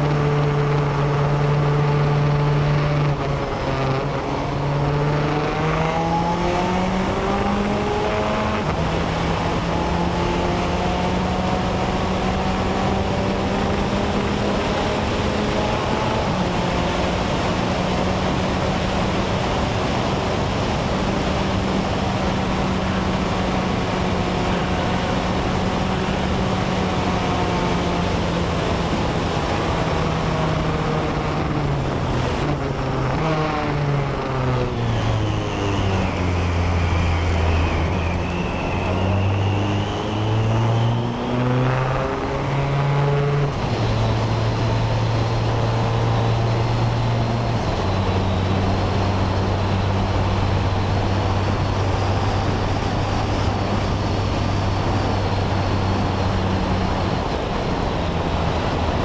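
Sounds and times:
car engine changing gears: 0.0 - 59.0
wind noise: 0.0 - 59.0.

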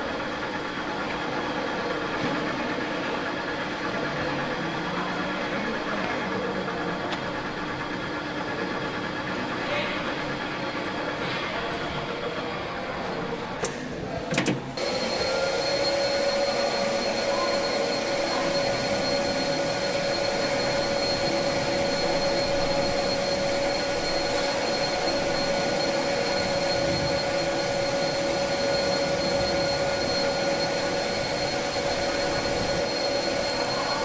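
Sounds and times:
metal lathe whining: 14.7 - 34.0.

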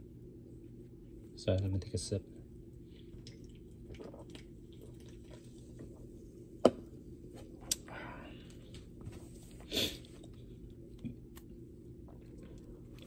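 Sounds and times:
person sipping and swallowing: 2.8 - 6.2.

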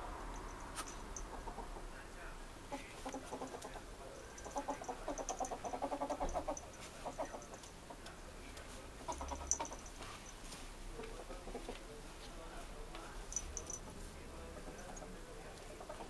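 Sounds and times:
ferret clucking chatter: 0.5 - 10.4, 13.2 - 16.0.

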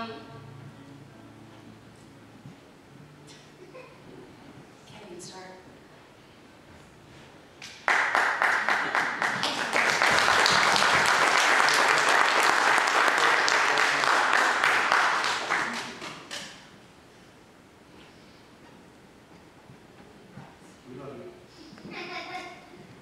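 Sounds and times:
congregation applauding: 7.6 - 16.5.

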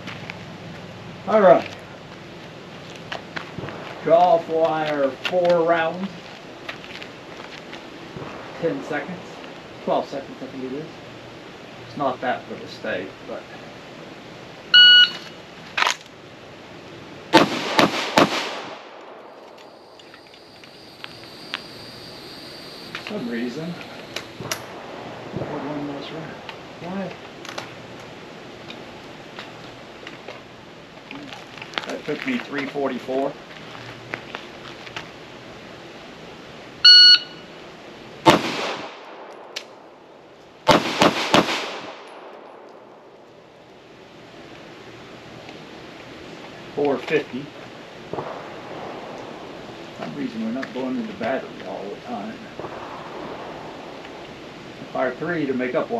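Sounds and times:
shot timer beep: 14.8 - 15.2, 36.9 - 37.4
pistol shots with echo: 17.3 - 19.3, 38.2 - 39.5, 40.7 - 42.7.

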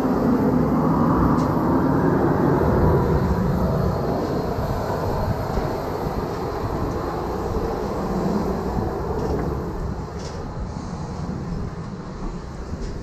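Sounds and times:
airliner engines and wheels rumbling: 0.0 - 13.0.

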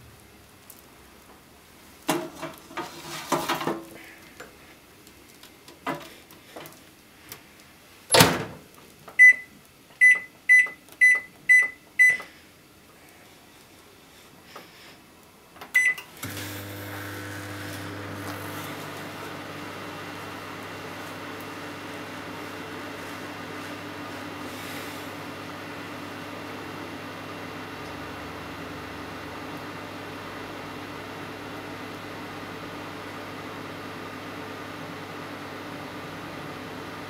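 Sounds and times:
plastic container sliding: 2.4 - 3.8, 16.4 - 21.8
keypad beeps: 9.2 - 12.2, 15.8 - 16.0
microwave humming with fan: 15.8 - 37.0.

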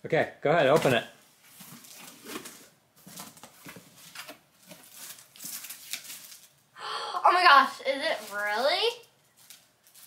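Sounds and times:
plastic wrap crinkling: 1.6 - 6.7, 7.4 - 10.0.

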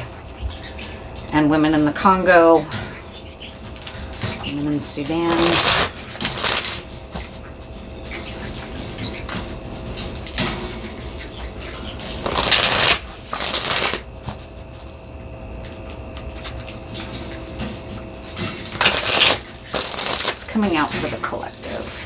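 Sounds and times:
cards being shuffled: 5.3 - 6.8, 12.2 - 14.4, 18.8 - 20.4.

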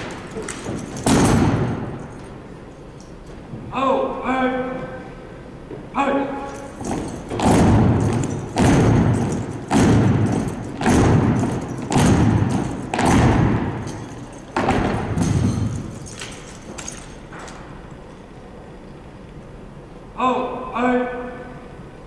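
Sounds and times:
foot stomps on wooden floor: 6.8 - 16.5.

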